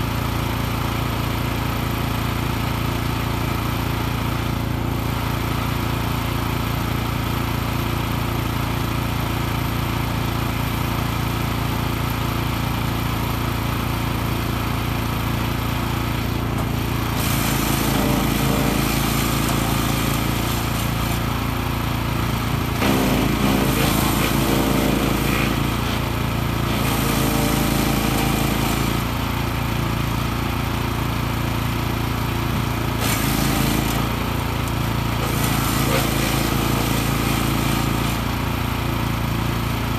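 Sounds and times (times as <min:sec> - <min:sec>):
wood chipper engine running: 0:00.0 - 0:39.9.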